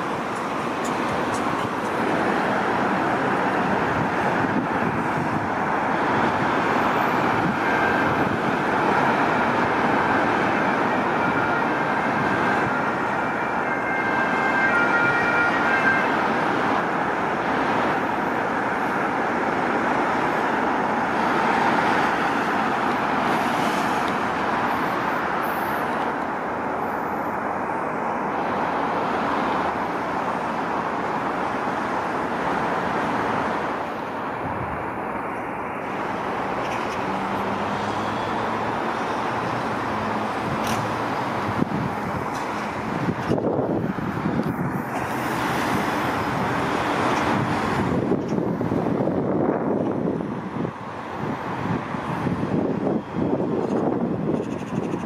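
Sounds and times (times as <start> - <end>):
dense motorway traffic: 0.0 - 55.0.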